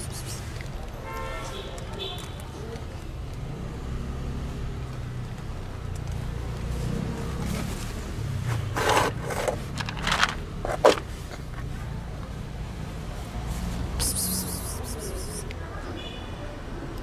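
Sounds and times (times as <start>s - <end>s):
plastic bowl of kibble scraping: 7.3s - 11.6s.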